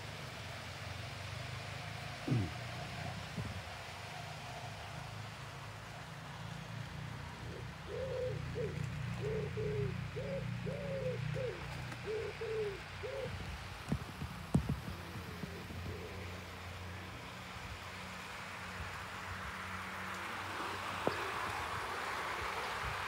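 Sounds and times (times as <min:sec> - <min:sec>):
pigeon cooing: 0:02.2 - 0:03.1, 0:07.3 - 0:13.5, 0:14.7 - 0:16.5.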